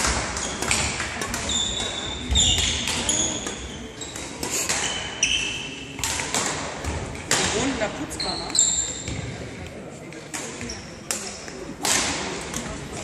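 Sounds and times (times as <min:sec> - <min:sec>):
shoes squeaking on floor: 0:01.3 - 0:05.8, 0:08.1 - 0:09.3
racket striking shuttlecock: 0:06.0 - 0:07.7, 0:10.3 - 0:12.7.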